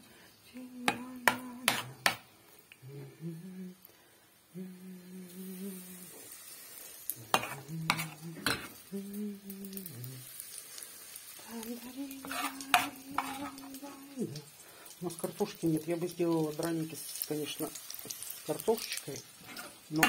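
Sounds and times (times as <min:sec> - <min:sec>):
faint frying sizzle: 0:00.0 - 0:20.0
woman humming: 0:00.5 - 0:02.0, 0:02.8 - 0:03.9, 0:04.5 - 0:06.2, 0:07.6 - 0:10.3, 0:11.4 - 0:14.5
spoon scraping batter in bowl: 0:07.4 - 0:08.7, 0:12.2 - 0:13.6.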